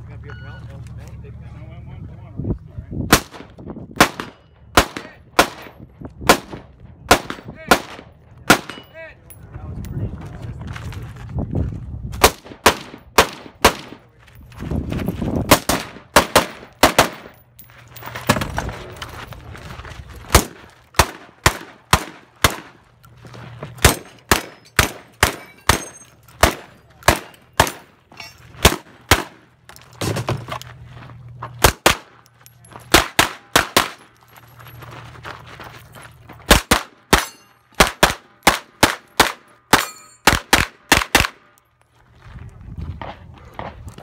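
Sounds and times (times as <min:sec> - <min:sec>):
rifle gunshots: 0:03.1 - 0:05.7, 0:06.3 - 0:08.8, 0:12.2 - 0:14.0, 0:15.5 - 0:17.4, 0:20.3 - 0:22.8, 0:23.8 - 0:27.9, 0:28.6 - 0:29.4, 0:32.9 - 0:34.0, 0:36.5 - 0:41.4
pistol gunshots: 0:03.1 - 0:08.9, 0:12.2 - 0:14.0, 0:15.5 - 0:17.4, 0:20.3 - 0:22.8, 0:23.8 - 0:28.0, 0:28.6 - 0:29.5, 0:31.6 - 0:32.2, 0:32.9 - 0:34.1, 0:36.5 - 0:41.5.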